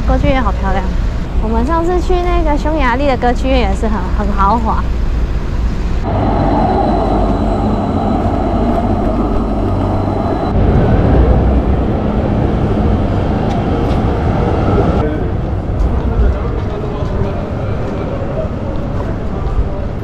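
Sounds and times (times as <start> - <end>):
train rumbling: 0.0 - 20.0
thin high whine: 4.9 - 11.7.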